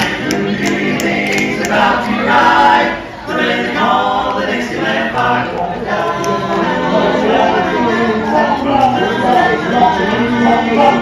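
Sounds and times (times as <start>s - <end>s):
male voices singing in harmony: 0.0s - 11.0s.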